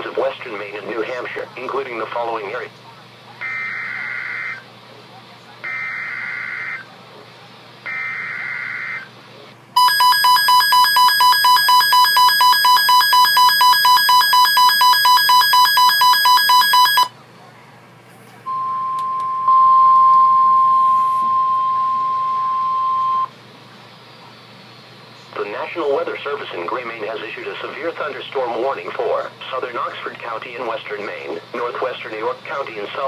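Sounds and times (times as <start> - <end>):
rapid beeping alarm: 3.4 - 4.7, 5.6 - 6.9, 7.8 - 9.1, 9.8 - 17.1
steady warning alarm tone: 3.4 - 4.7, 5.6 - 6.9, 7.8 - 9.1, 9.8 - 17.1, 18.5 - 23.3.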